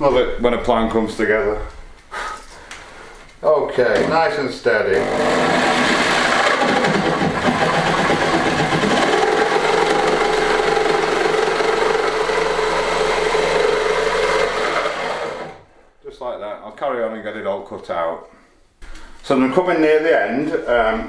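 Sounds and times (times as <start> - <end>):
jigsaw cutting wood: 4.0 - 4.3, 5.0 - 15.6.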